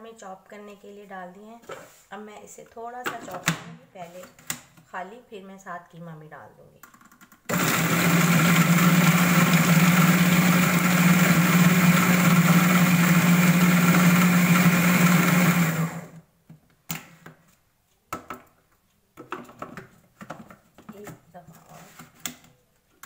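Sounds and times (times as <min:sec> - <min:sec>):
food processor running: 0:07.5 - 0:16.2.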